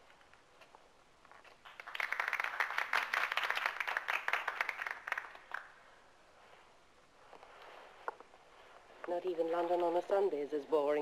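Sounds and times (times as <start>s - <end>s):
group of people applauding: 1.6s - 5.8s.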